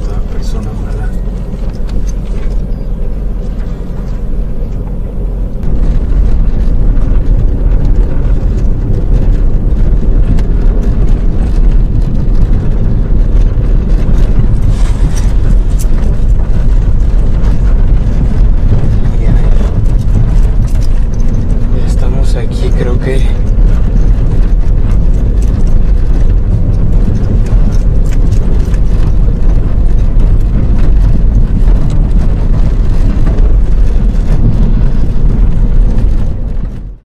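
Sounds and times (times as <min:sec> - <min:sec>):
car cabin rumble: 0:00.0 - 0:37.0.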